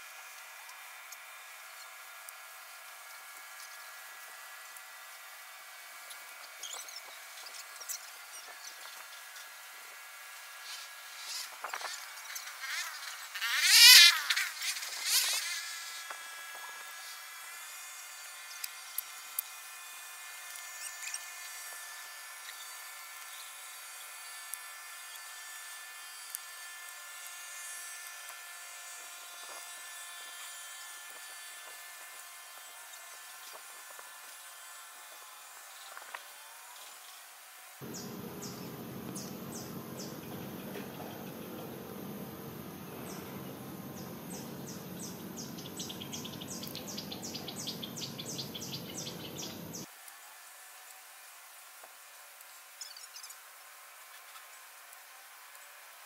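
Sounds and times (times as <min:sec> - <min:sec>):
high falling chirps: 0:37.8 - 0:49.8
insect chorus droning: 0:37.8 - 0:49.9
low background noise: 0:37.8 - 0:50.2.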